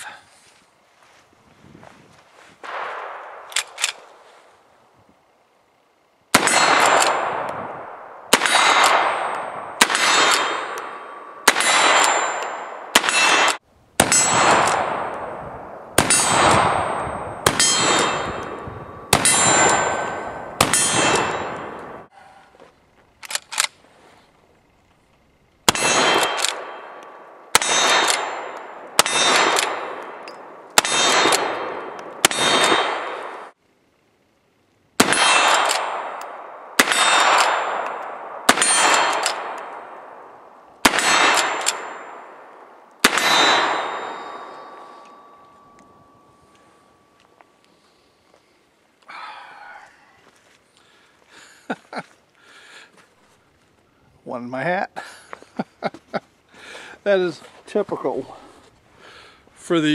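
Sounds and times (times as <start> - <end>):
rifle shots: 2.6 - 4.2, 6.3 - 22.1, 25.6 - 33.6, 35.0 - 45.6
steel target ringing: 8.4 - 15.1, 16.0 - 22.1, 27.6 - 33.0, 40.9 - 47.2.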